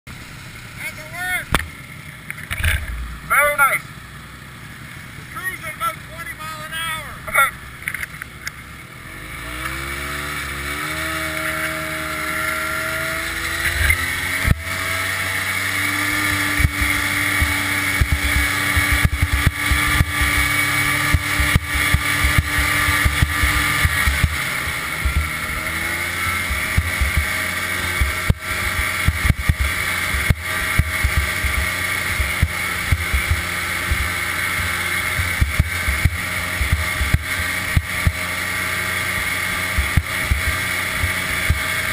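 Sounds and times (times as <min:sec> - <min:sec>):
snowmobile engine running: 0:00.1 - 0:41.9
sled knocking and thumping: 0:16.1 - 0:38.4, 0:39.2 - 0:41.9.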